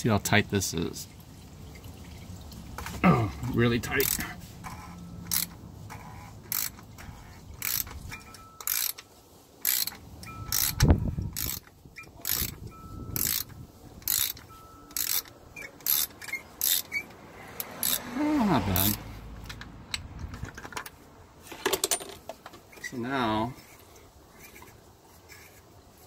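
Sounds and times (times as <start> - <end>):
ratchet clicking: 4.0 - 9.0, 9.6 - 18.0, 18.8 - 20.1.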